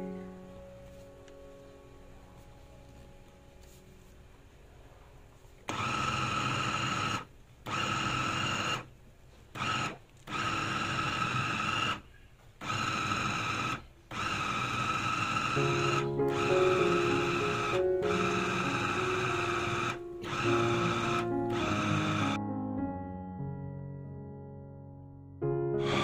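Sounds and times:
food chopper motor whine: 5.7 - 8.9, 9.5 - 12.0, 12.6 - 22.4, 25.8 - 26.0.

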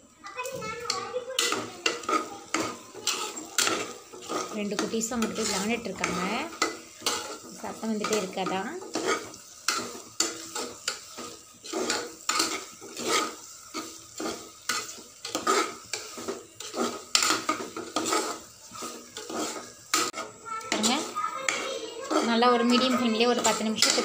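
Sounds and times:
meat sizzling: 0.0 - 24.0
metal spoon scraping a pot: 1.4 - 24.0.

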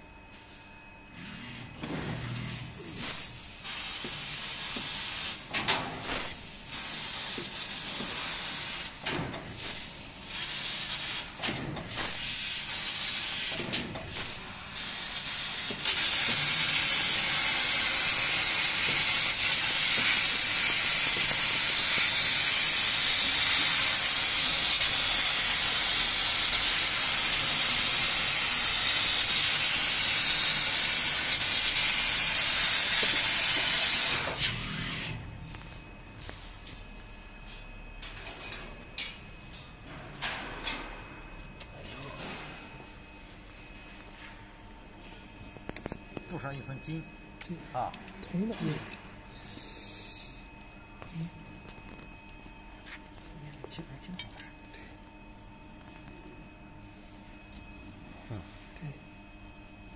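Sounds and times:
laser cutter gas jet hissing: 2.4 - 35.2, 49.4 - 50.4.

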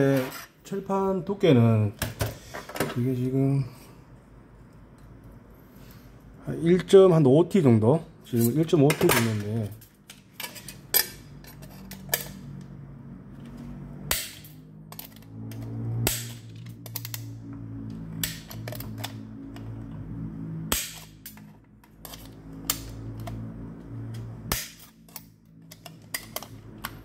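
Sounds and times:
low steady hum: 0.0 - 27.0
shears snapping through metal: 14.1 - 17.3, 18.2 - 19.0, 20.7 - 27.0.

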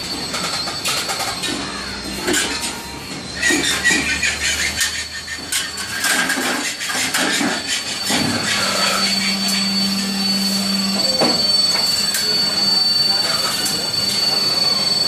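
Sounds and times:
metallic squeal: 0.0 - 15.0
roll forming machine running: 0.0 - 15.0
low hum: 7.8 - 15.0.

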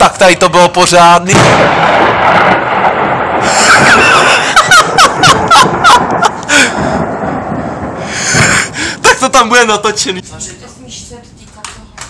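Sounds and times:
rumbling thunder: 1.3 - 10.2.

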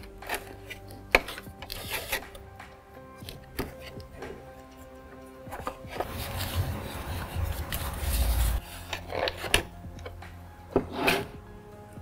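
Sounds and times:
plastic rubbing and scraping: 0.0 - 2.4, 5.5 - 11.4.

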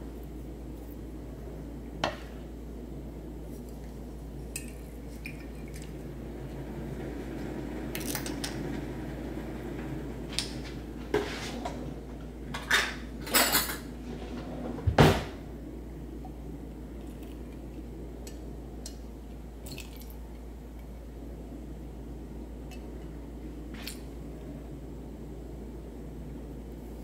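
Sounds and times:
dishes and utensils clattering: 12.6 - 13.9.

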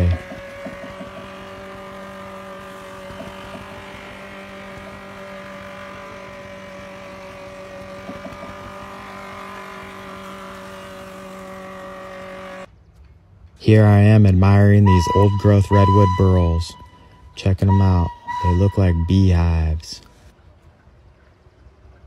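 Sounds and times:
sawmill machinery humming: 0.0 - 12.7, 13.9 - 19.8.

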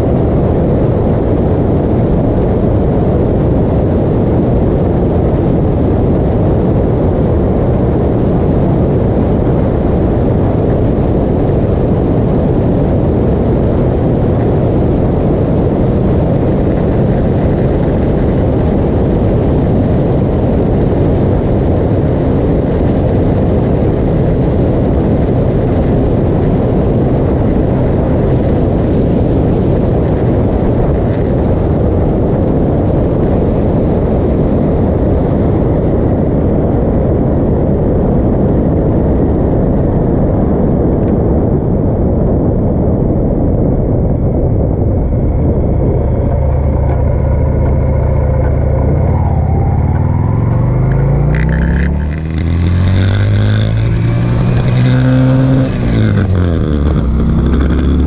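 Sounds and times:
wind rushing over microphone: 0.0 - 58.0
motorcycle engine running: 9.0 - 32.1, 43.8 - 58.0.

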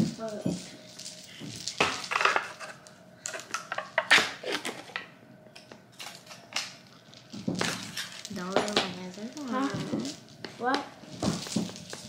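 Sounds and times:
crunching rustling handling noises: 5.9 - 12.0.

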